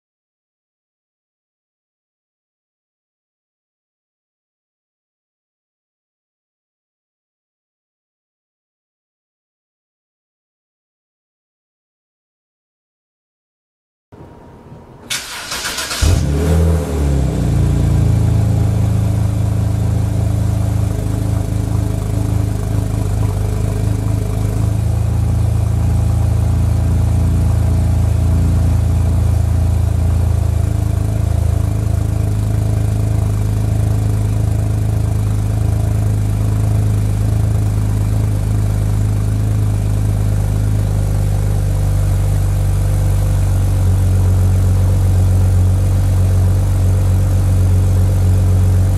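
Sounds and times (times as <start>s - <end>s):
starter motor cranking: 15.1s - 16.2s
car engine revving and idling: 15.5s - 48.9s.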